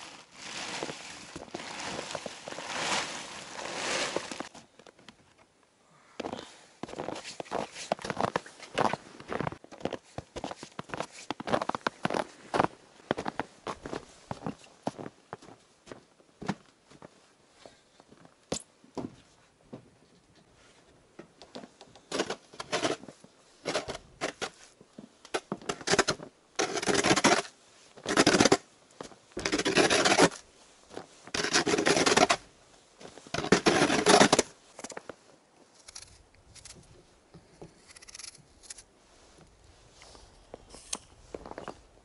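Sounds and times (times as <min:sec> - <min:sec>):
boots crunching through snow: 0:00.0 - 0:04.5
snow shovel scraping snow: 0:00.0 - 0:04.5, 0:29.4 - 0:30.4, 0:31.0 - 0:32.4, 0:33.2 - 0:34.5.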